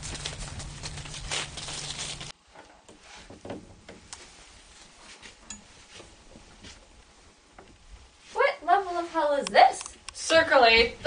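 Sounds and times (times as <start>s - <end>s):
footsteps in dry leaves: 0.0s - 2.4s.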